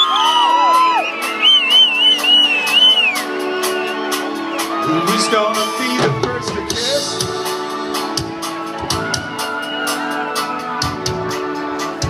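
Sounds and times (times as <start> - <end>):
live rock band through pa: 0.0 - 12.0
drum beat: 5.0 - 9.6.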